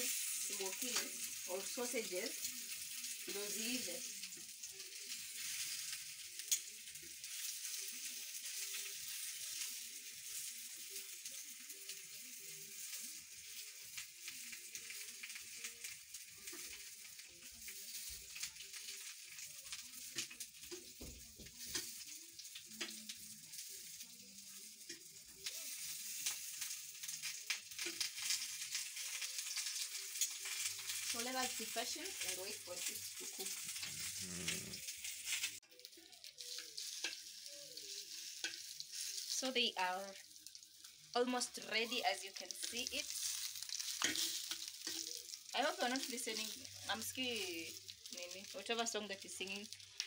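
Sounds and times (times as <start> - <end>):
sausages sizzling in frying pan: 0.0 - 50.0
metal tongs clicking on pan: 2.4 - 9.8, 12.8 - 20.9, 21.6 - 23.2, 24.5 - 34.0, 35.3 - 39.3, 42.6 - 47.4.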